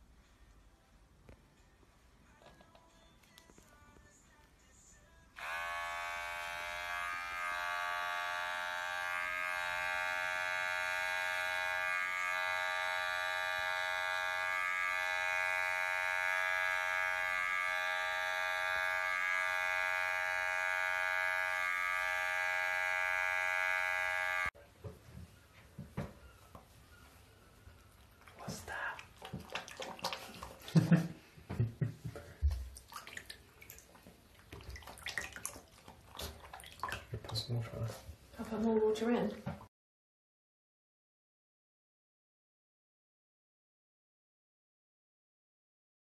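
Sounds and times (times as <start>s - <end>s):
electric hair clippers buzzing: 5.4s - 24.6s.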